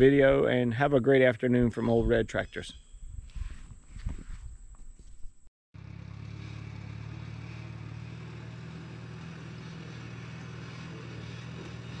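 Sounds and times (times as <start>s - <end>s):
old tractor engine running: 5.8s - 12.0s.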